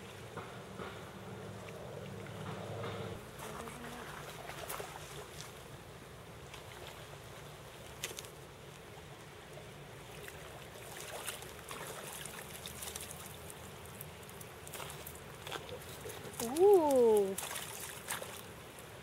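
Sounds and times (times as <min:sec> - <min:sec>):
short splashes and knocks: 0:03.2 - 0:05.7, 0:10.1 - 0:18.8
river running over gravel: 0:03.2 - 0:19.0.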